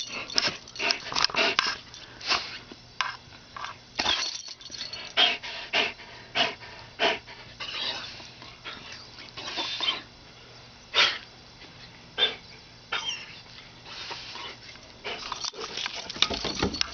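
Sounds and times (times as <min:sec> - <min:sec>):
dog panting hard: 0:00.0 - 0:02.5, 0:04.9 - 0:10.0.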